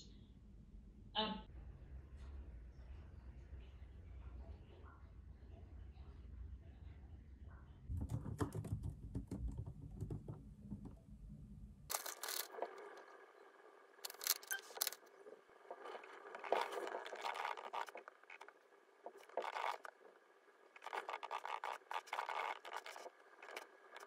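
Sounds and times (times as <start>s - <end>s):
scratchy scraping: 14.0s - 20.1s, 20.7s - 24.0s.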